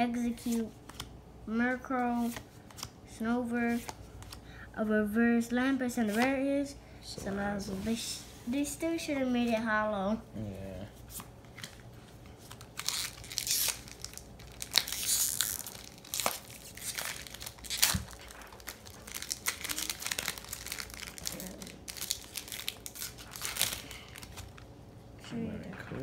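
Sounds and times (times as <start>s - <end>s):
foil wrapper crinkling and ripping: 12.4s - 24.7s.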